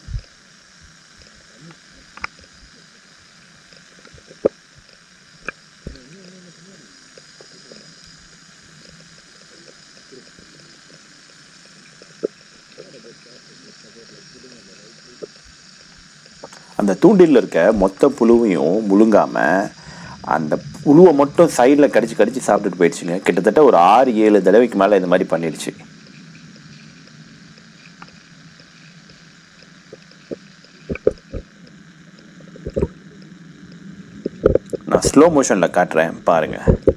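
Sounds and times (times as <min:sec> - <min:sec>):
underwater hiss: 0:00.0 - 0:36.9
faint knocks and clicks: 0:27.6 - 0:33.0, 0:34.2 - 0:34.9, 0:36.7 - 0:36.9.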